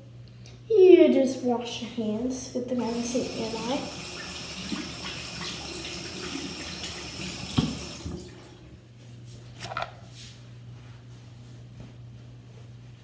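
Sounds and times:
tap water running: 2.7 - 8.8.

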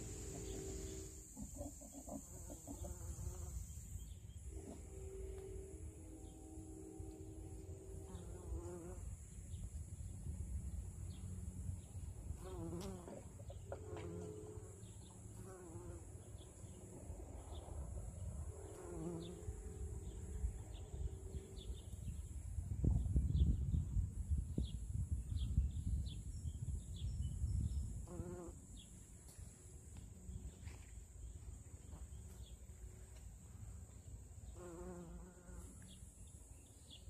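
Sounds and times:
bumblebee buzzing: 0.0 - 9.2, 12.4 - 16.1, 18.6 - 20.1, 28.0 - 28.6, 34.6 - 35.7.

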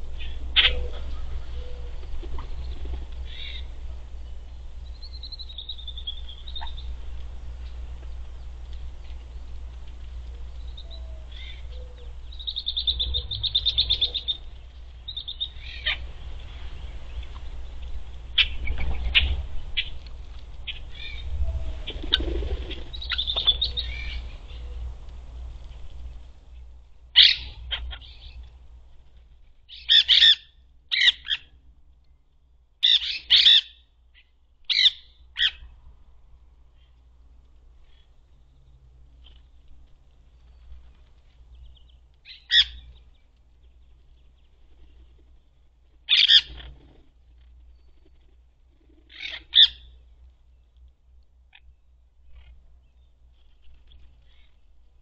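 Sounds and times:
parrots chattering and squawking: 0.2 - 3.7, 15.1 - 16.1, 27.1 - 28.4, 29.7 - 31.5, 32.8 - 33.8, 34.7 - 35.6, 42.2 - 43.0, 46.1 - 47.1, 48.1 - 50.0.

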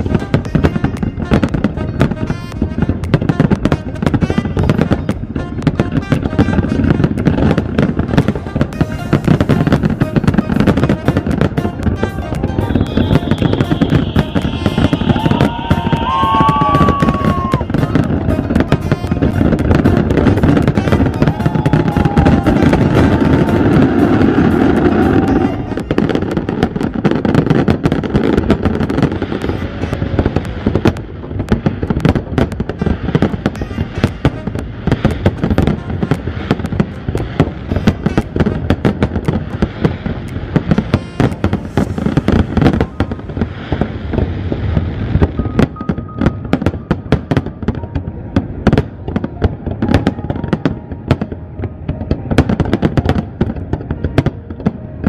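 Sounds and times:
fireworks bursting and crackling: 0.0 - 55.0.

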